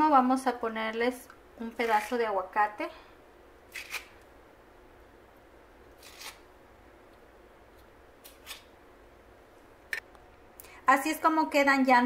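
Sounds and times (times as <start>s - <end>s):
knife slicing avocado: 3.7s - 4.2s, 5.9s - 6.5s.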